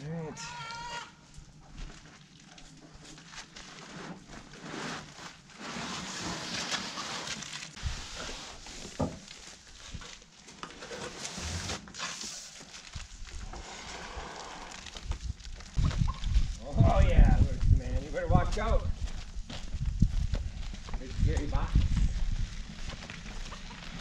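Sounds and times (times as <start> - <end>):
cardboard box scraping: 3.8 - 9.0, 10.8 - 12.6.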